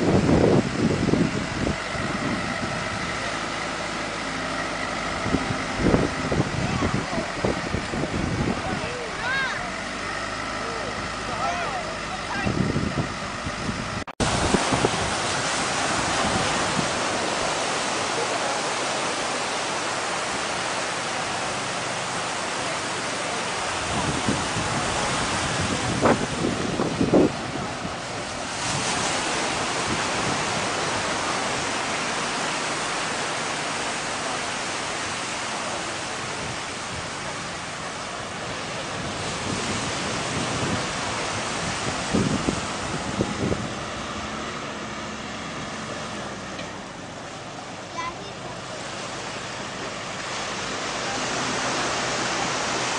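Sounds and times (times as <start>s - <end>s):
wind buffeting microphone: 0.0s - 10.3s, 12.0s - 47.5s
surf washing up beach: 0.0s - 52.9s.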